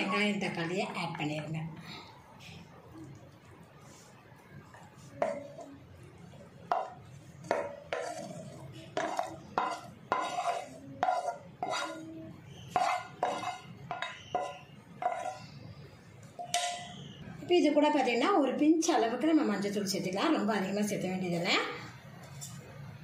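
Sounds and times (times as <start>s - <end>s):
spatula clacking on metal: 6.7s - 12.0s, 12.7s - 15.5s
spatula scraping a pan: 6.7s - 15.6s.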